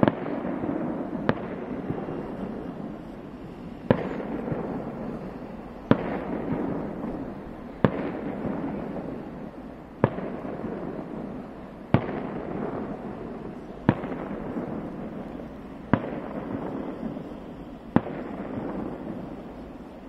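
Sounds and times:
firework shells bursting: 0.0s - 20.0s.

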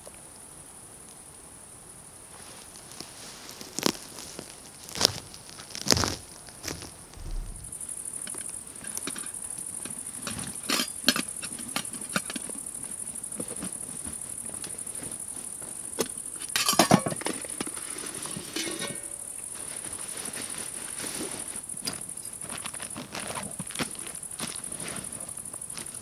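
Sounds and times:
insect chorus: 0.0s - 26.0s
camping gear rustling and knocking: 10.0s - 26.0s.

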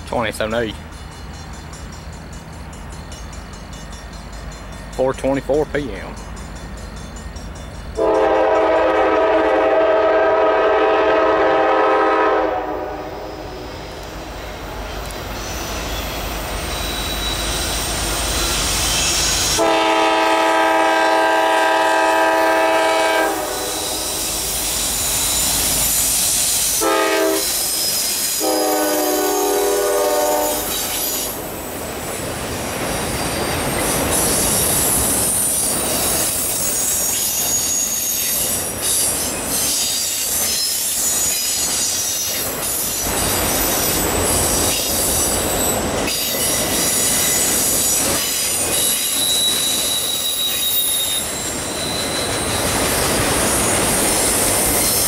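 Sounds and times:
locomotive air horn blasts: 8.0s - 13.6s, 19.5s - 24.2s, 26.7s - 27.8s, 28.4s - 31.0s
high wheel squeal: 15.3s - 19.6s, 23.7s - 31.4s, 33.0s - 55.0s
train wheels clattering: 23.6s - 55.0s.

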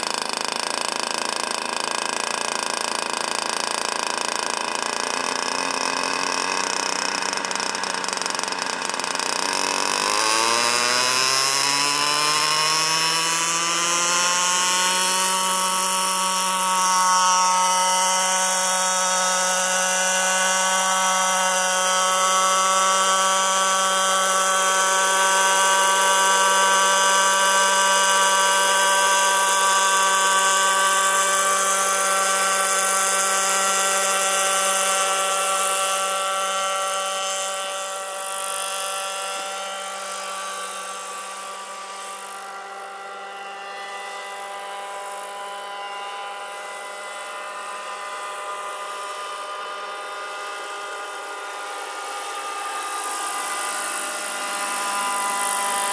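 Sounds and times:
model helicopter engine and rotors: 0.0s - 55.9s.

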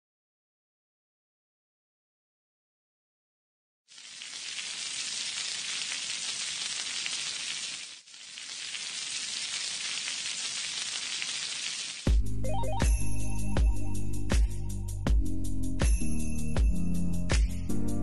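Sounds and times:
food sizzling in a pan: 3.9s - 12.1s.

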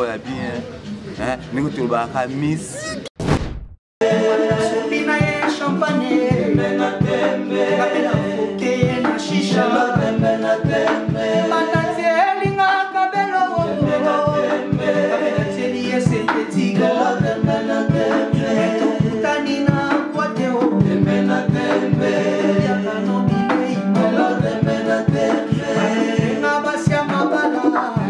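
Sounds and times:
men singing in harmony: 4.0s - 28.0s
steady beat: 4.3s - 12.8s.

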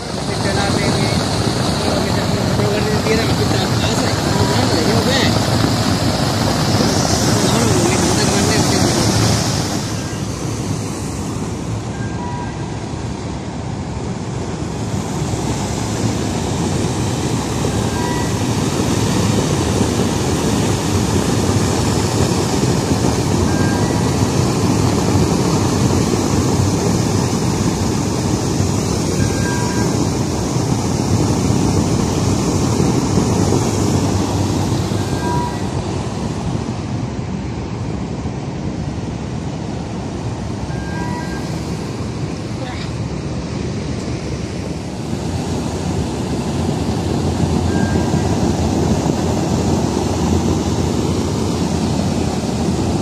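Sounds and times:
faint short beep: 11.9s - 12.6s, 17.9s - 18.4s, 29.2s - 30.0s, 35.0s - 35.7s, 40.7s - 41.5s, 47.7s - 48.3s.

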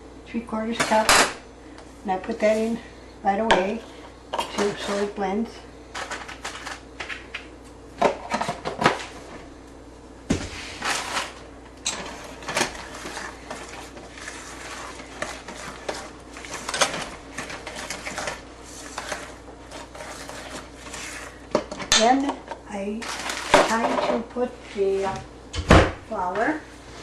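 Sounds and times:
dough stirred in metal bowl: 12.1s - 21.6s.

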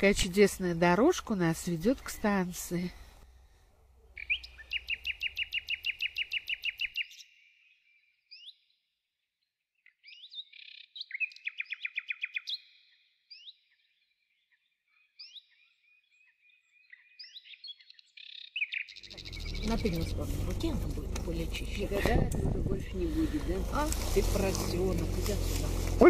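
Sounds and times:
songbird trilling and chirping: 4.1s - 8.7s, 9.8s - 25.9s
low rumble: 19.1s - 26.0s.

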